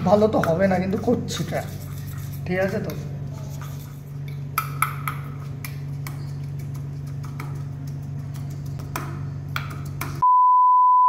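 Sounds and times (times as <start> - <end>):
spoon scraping steel bowl: 0.0 - 8.8
steady low hum: 0.0 - 10.2.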